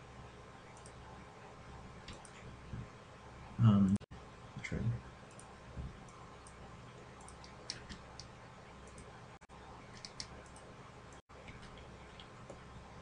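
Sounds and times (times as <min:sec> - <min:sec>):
low steady hum: 0:00.0 - 0:13.0
computer mouse clicks: 0:00.7 - 0:01.0, 0:02.0 - 0:02.4, 0:05.3 - 0:09.2, 0:09.9 - 0:12.6.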